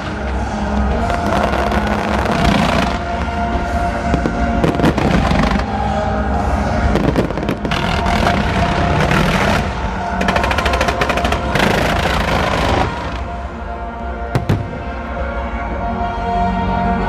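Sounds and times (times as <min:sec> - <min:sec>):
fireworks popping and crackling: 0:00.0 - 0:05.7, 0:06.8 - 0:13.4
rapid sharp firework reports: 0:00.9 - 0:13.4.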